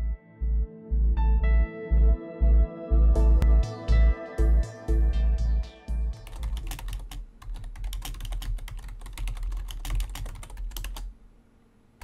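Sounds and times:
fast typing on keyboard: 0:06.2 - 0:11.1.

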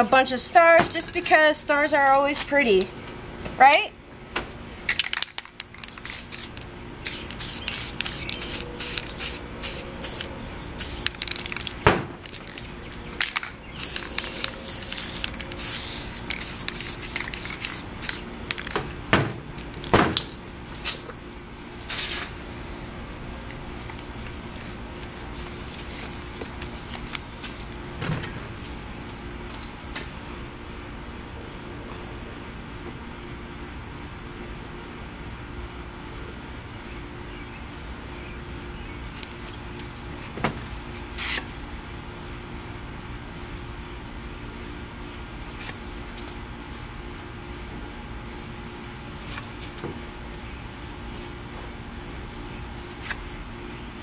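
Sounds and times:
spray paint cans hissing: 0:04.9 - 0:18.8.

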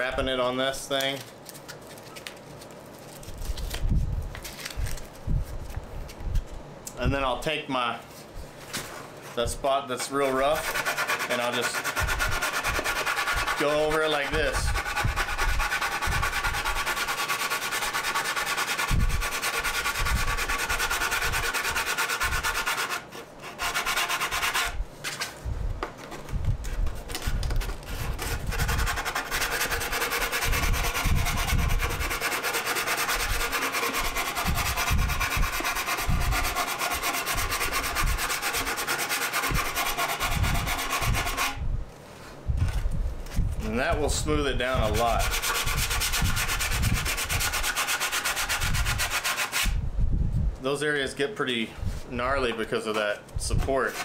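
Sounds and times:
sandpaper rasping on plastic: 0:10.2 - 0:24.8, 0:27.2 - 0:41.6, 0:44.2 - 0:49.8, 0:53.4 - 0:54.0.

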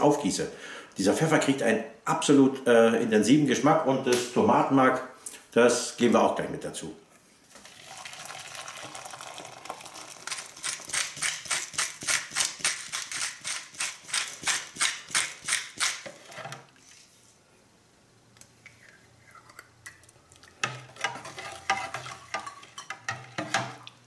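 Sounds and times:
water pouring into a jug: 0:07.5 - 0:10.9
spoon stirring and clinking: 0:20.6 - 0:23.9.

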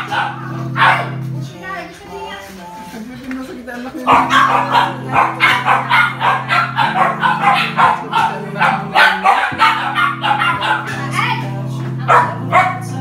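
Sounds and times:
puppies squealing: 0:00.0 - 0:01.2, 0:04.1 - 0:11.4
background music with low chords: 0:00.0 - 0:13.0.

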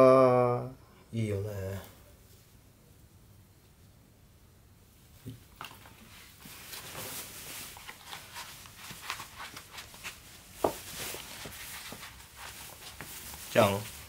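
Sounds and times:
shoes rustling and scuffing: 0:05.7 - 0:14.0.

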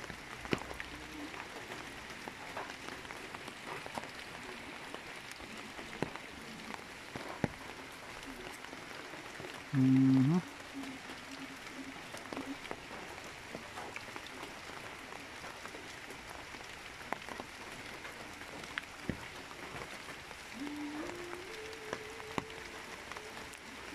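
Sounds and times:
sharp drips and taps: 0:00.0 - 0:23.6
falling rain: 0:00.0 - 0:23.9
river in flood rushing: 0:00.0 - 0:23.9.

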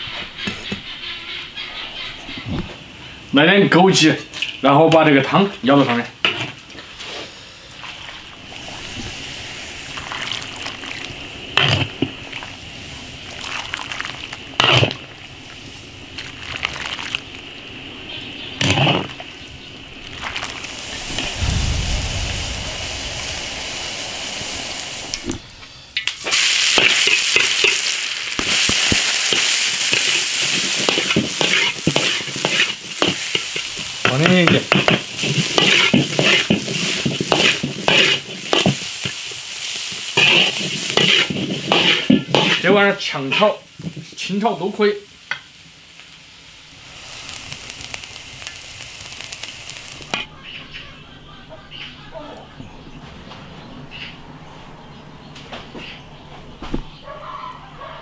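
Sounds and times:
food sizzling in wok: 0:04.2 - 0:50.4
ladle scraping wok: 0:13.2 - 0:15.2, 0:18.6 - 0:19.3, 0:26.2 - 0:44.1.

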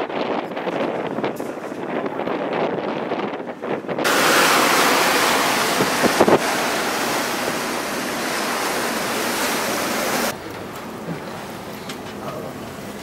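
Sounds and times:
wind buffeting microphone: 0:00.0 - 0:10.4
rough sea rushing: 0:04.0 - 0:11.8.

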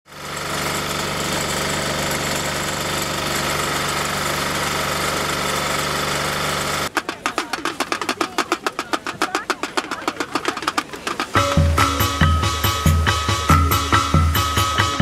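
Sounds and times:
fast rhythmic music beat: 0:06.9 - 0:15.0.

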